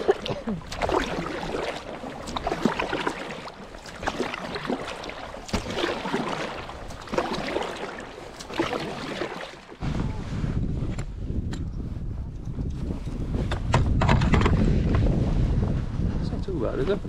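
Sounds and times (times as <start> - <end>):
paddle strokes splashing water: 0.0 - 10.4.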